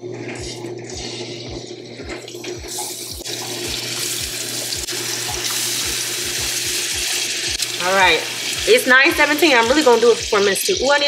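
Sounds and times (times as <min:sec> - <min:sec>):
fish sizzling in a frying pan: 0:02.8 - 0:11.0.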